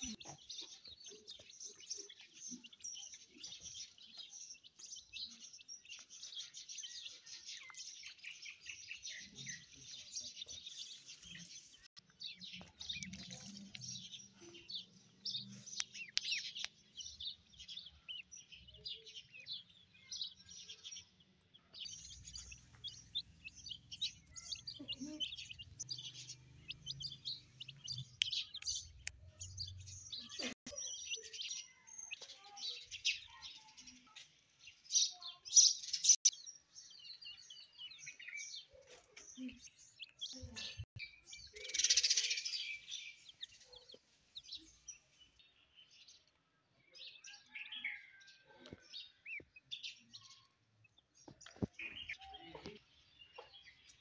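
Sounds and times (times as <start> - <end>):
ducklings peeping: 21.8 - 31.6.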